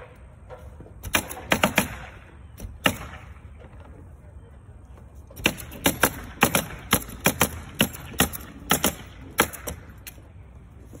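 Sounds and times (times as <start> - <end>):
nail gun shots: 1.0 - 3.4, 5.4 - 9.9.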